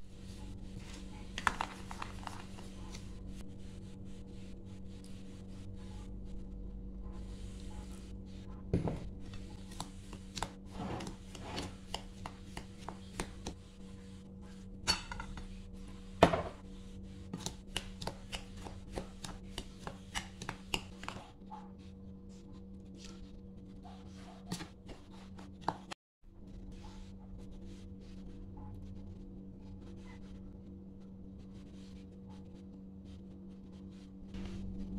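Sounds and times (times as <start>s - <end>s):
steady low hum: 0.0s - 34.9s
plastic spoon scraping bowl: 0.8s - 3.1s, 9.2s - 13.6s, 17.3s - 21.3s.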